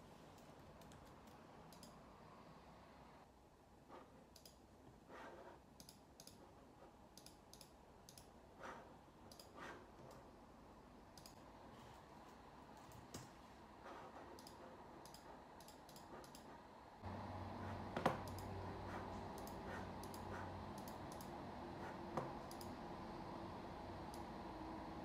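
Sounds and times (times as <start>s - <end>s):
laptop keyboard clicking: 18.0s - 18.5s, 22.2s - 22.7s.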